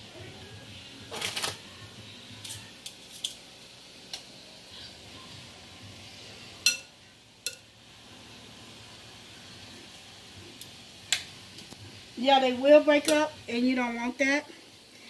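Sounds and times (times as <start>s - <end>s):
metal tongs clinking on glass bowl: 6.6s - 7.7s.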